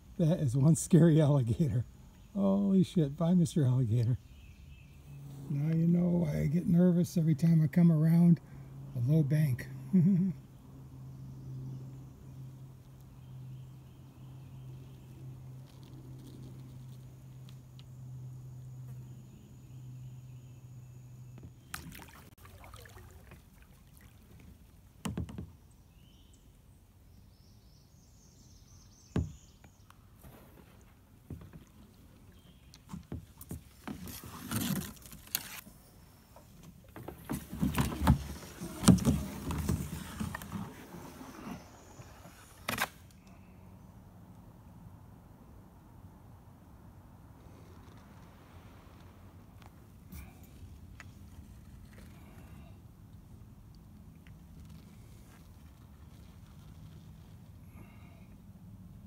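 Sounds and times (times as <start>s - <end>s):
paddle splashing in water: 21.6s - 25.5s, 36.5s - 42.6s.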